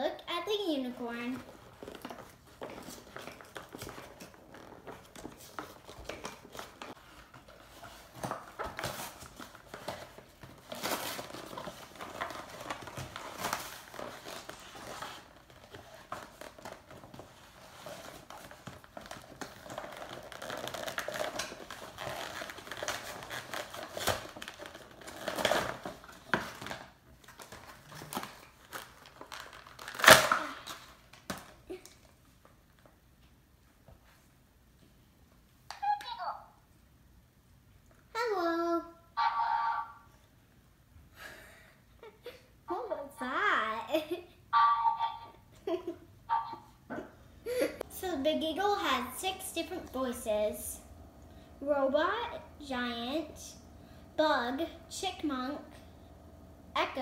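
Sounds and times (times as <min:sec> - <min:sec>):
toy packaging crinkling: 0:09.1 - 0:31.9.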